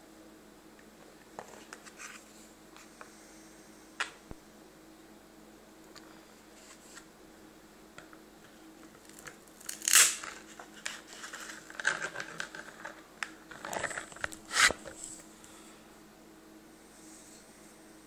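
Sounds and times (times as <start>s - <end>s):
plastic sheath scraping: 9.1s - 15.2s.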